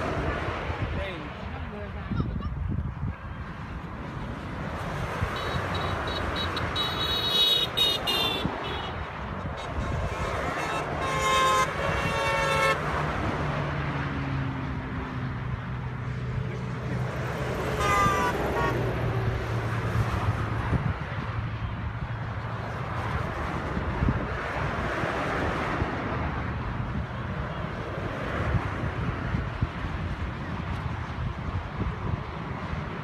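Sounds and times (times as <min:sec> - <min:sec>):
motorway traffic passing: 0:00.0 - 0:33.0
car horns honking: 0:05.2 - 0:13.0, 0:17.6 - 0:19.0.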